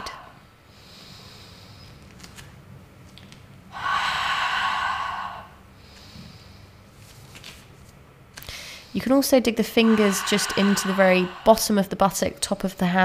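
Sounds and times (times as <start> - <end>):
faint breaths: 0.0 - 2.0, 3.7 - 7.0, 8.4 - 12.4
woman exhaling hard: 3.7 - 6.3, 9.8 - 12.0.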